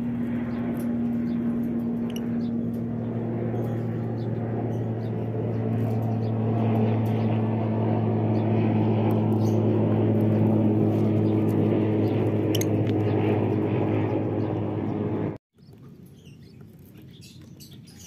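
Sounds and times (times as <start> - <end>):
engine droning: 0.0 - 15.4
bird chirps: 1.2 - 2.6.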